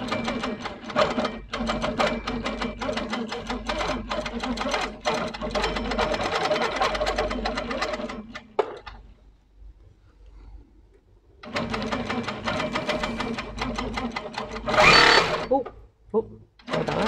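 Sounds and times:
quilting machine stitching: 0:00.0 - 0:08.6, 0:11.4 - 0:15.6, 0:16.6 - 0:17.0.

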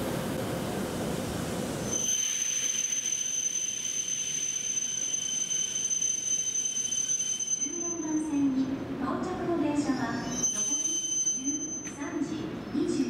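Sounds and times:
steady high-pitched whine: 0:01.1 - 0:13.0.

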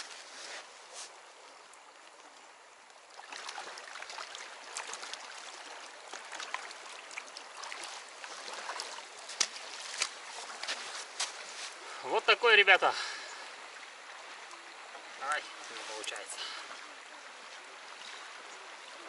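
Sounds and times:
small sharp splashes: 0:02.9 - 0:11.9
river rushing over stones: 0:03.0 - 0:19.0.

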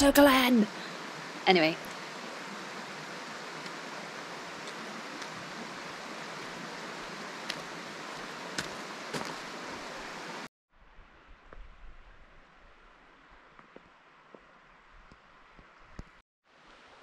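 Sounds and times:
quiet outdoor ambience: 0:00.0 - 0:17.0
river flowing over rocks: 0:00.8 - 0:10.5.

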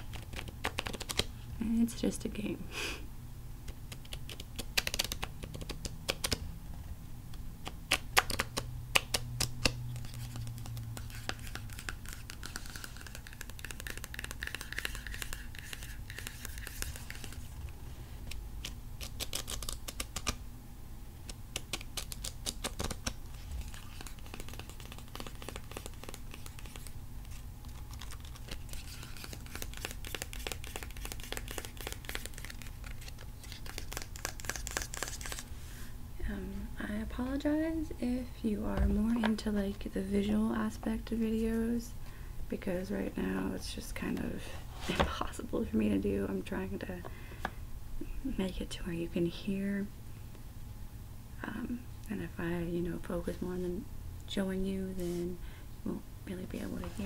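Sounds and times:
low recording hum: 0:00.0 - 0:57.0
fingernails tapping on cards: 0:07.6 - 0:17.4, 0:21.3 - 0:34.8.

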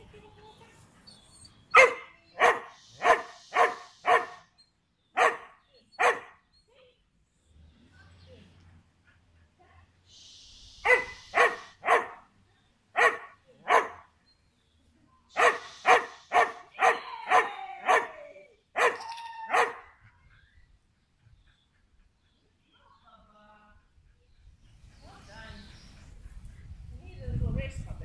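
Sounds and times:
dog barking: 0:01.7 - 0:04.4, 0:05.2 - 0:06.3, 0:10.8 - 0:12.2, 0:13.0 - 0:14.0, 0:15.4 - 0:18.1, 0:18.8 - 0:19.9.

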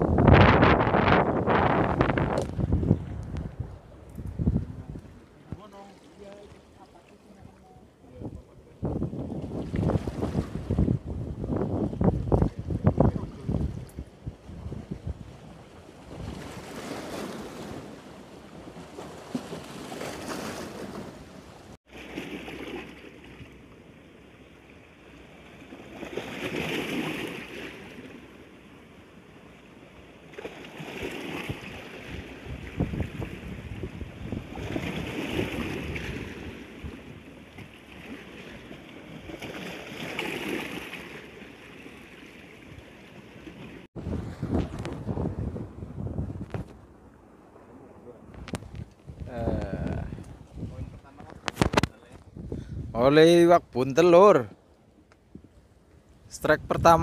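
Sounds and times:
wind buffeting microphone: 0:00.0 - 0:05.7, 0:08.1 - 0:18.8, 0:31.4 - 0:37.3, 0:43.9 - 0:53.8
small waves splashing on rocks: 0:15.3 - 0:23.6, 0:25.2 - 0:28.2, 0:30.2 - 0:33.6, 0:34.2 - 0:45.2.

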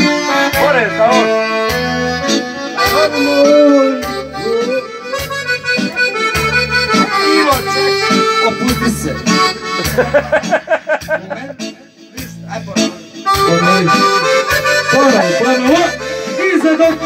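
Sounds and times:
pulsing bass notes: 0:00.0 - 0:11.6, 0:12.2 - 0:17.0
accordion melody: 0:00.0 - 0:17.0.

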